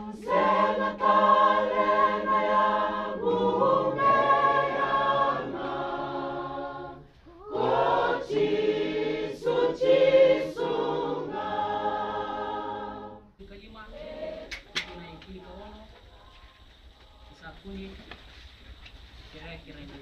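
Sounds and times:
congregation singing a hymn: 0:00.0 - 0:16.0.

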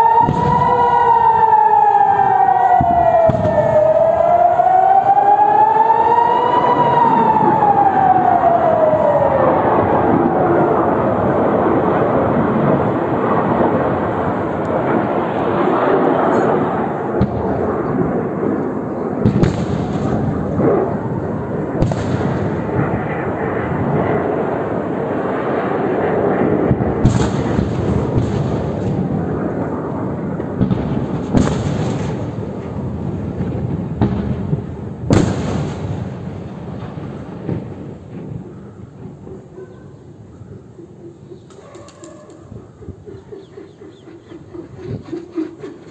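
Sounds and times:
continuous rumbling roar: 0:00.0 - 0:45.9
sharp explosion booms: 0:00.2 - 0:01.4, 0:02.8 - 0:03.9, 0:11.3 - 0:24.8, 0:26.3 - 0:39.2.

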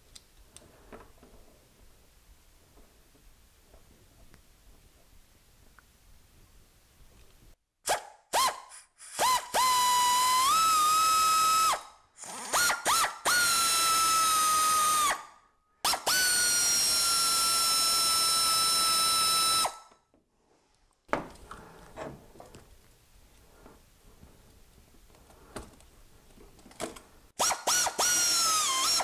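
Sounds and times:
cordless drill driving screws: 0:09.1 - 0:15.2, 0:27.4 - 0:29.0.

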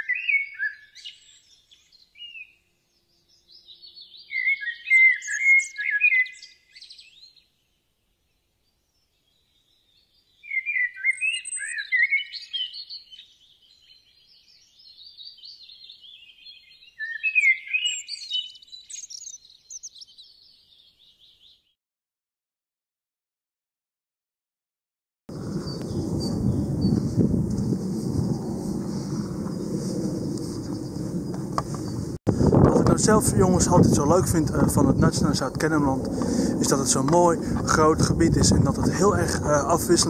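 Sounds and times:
songbirds twittering: 0:00.0 - 0:21.8, 0:25.3 - 0:27.3, 0:32.9 - 0:40.0.

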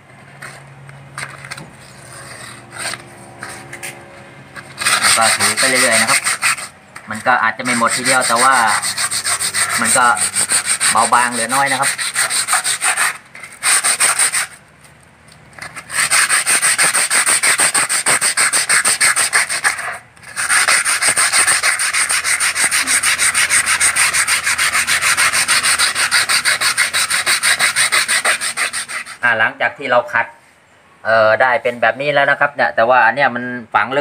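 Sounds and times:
sandpaper rubbing on wood: 0:01.2 - 0:04.0, 0:04.6 - 0:14.6, 0:15.6 - 0:29.3.

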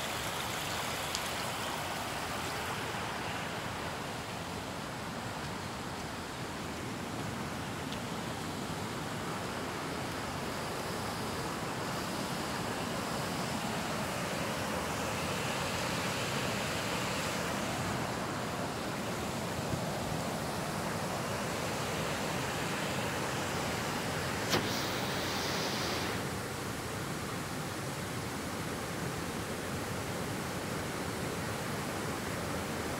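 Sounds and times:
river water pouring over weir: 0:00.0 - 0:32.9
sharp click: 0:24.5 - 0:26.0.

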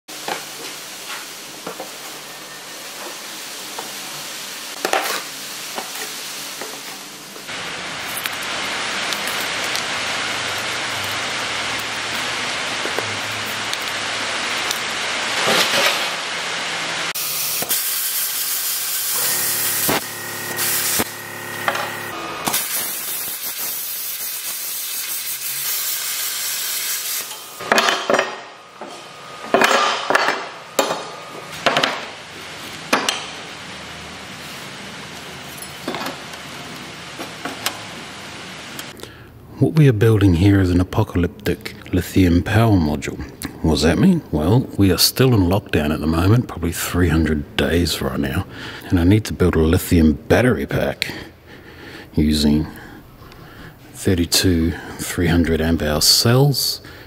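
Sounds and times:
steady hiss: 0:00.2 - 0:27.8
machine hum: 0:18.6 - 0:22.6.

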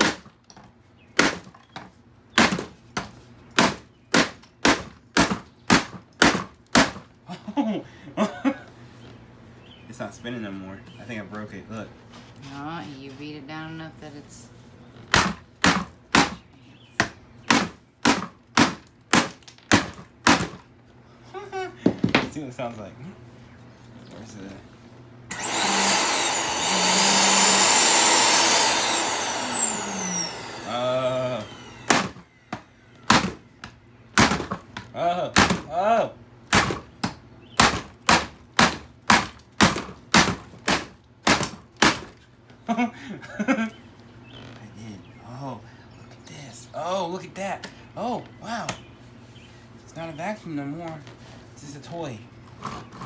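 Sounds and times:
hammer striking hard plastic: 0:34.2 - 0:34.6, 0:36.5 - 0:42.1.

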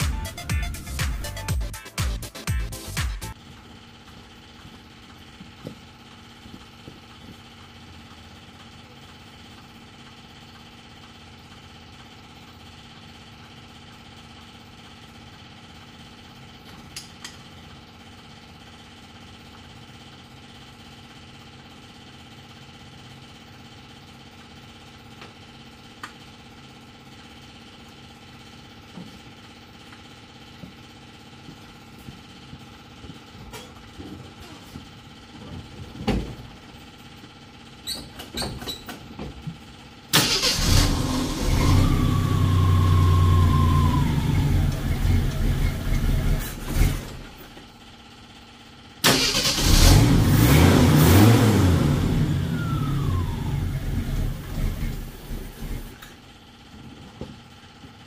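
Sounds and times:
car engine idling: 0:39.6 - 0:48.2, 0:49.0 - 0:55.9.

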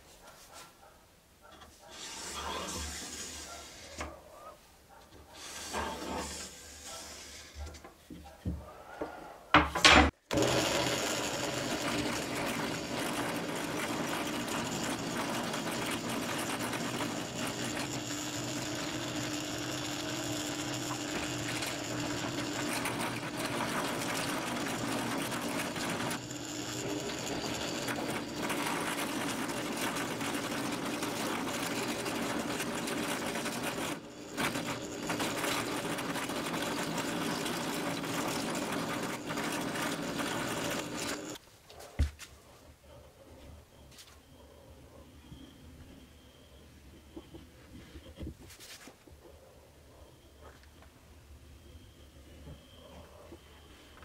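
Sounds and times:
drill press motor whirring: 0:01.9 - 0:03.9, 0:05.4 - 0:07.5, 0:10.3 - 0:41.4
wood being cut: 0:01.9 - 0:04.0, 0:10.3 - 0:41.4.

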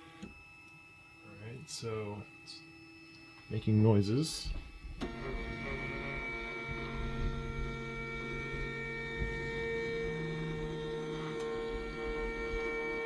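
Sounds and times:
printer motors and fans humming: 0:00.0 - 0:13.0.

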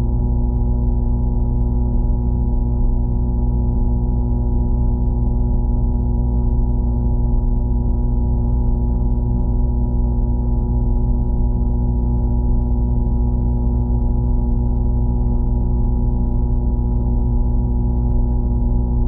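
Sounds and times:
faint ticks: 0:00.5 - 0:02.8, 0:03.4 - 0:09.6.

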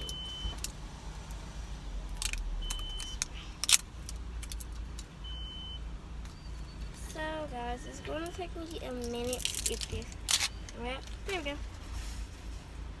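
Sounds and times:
plastic wrapping crinkling: 0:08.7 - 0:11.4.

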